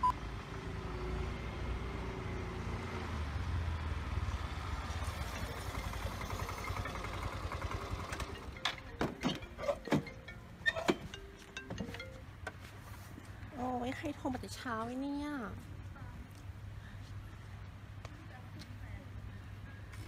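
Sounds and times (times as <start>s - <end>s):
scooter engine running: 4.6s - 10.4s.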